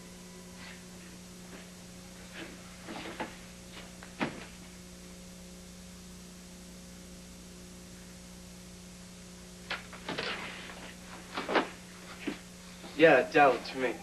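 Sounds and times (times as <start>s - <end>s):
low electrical hum with hiss: 0.0s - 14.0s.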